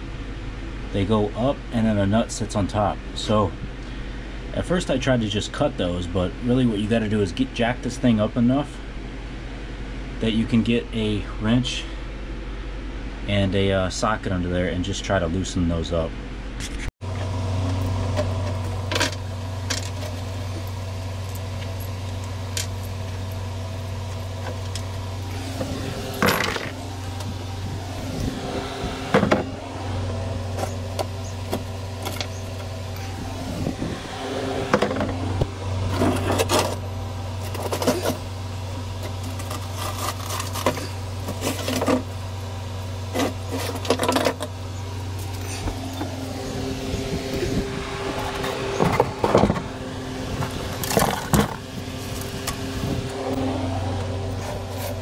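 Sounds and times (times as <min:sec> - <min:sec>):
low hum: 0:16.0 - 0:55.0
metal bolts clinking and scraping: 0:26.1 - 0:26.8.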